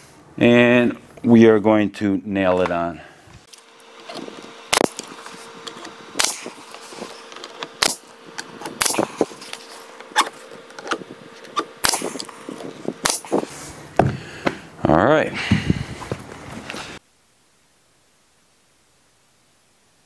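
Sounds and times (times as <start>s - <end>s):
faint steady hum: 0.0s - 20.0s
nail gun firing into wood: 4.7s - 5.2s, 6.2s - 6.7s, 7.8s - 8.1s, 8.7s - 9.2s, 11.6s - 12.3s, 13.0s - 13.4s.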